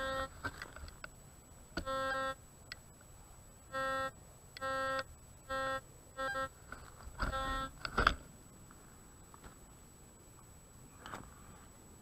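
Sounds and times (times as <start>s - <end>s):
metal detector tone: 0.0s - 0.4s, 1.8s - 2.4s, 3.7s - 6.6s, 7.2s - 7.8s.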